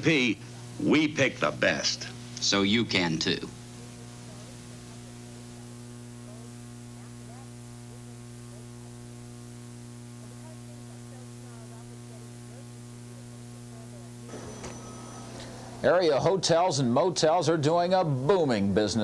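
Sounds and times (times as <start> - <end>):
electrical mains hum: 0.0 - 19.0.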